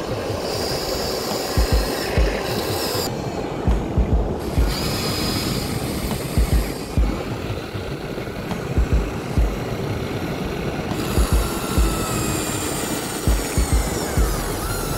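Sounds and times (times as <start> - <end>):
toy excavator motors whirring: 0.0 - 14.9
low thumps: 3.6 - 4.8, 8.5 - 9.6.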